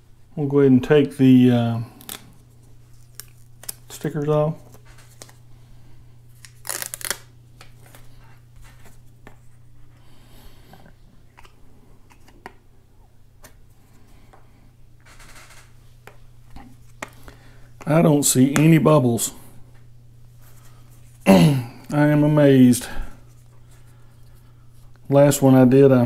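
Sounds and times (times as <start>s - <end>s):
steady low hum: 0.0s - 26.0s
papery crackle: 6.4s - 8.1s.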